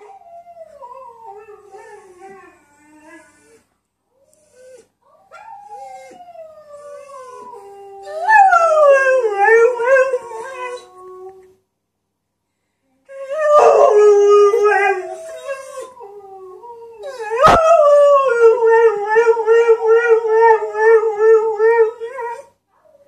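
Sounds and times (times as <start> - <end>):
dog howling: 13.1 - 22.5.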